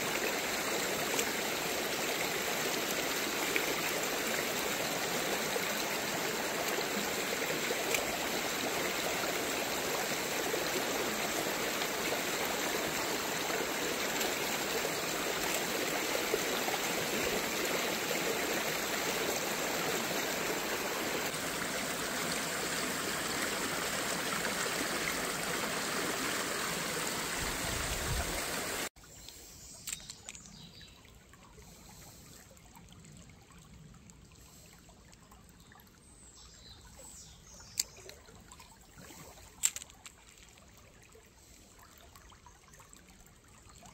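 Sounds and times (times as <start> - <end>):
stream rushing over rocks: 0.0 - 28.9
gentle trickle of water: 0.0 - 43.9.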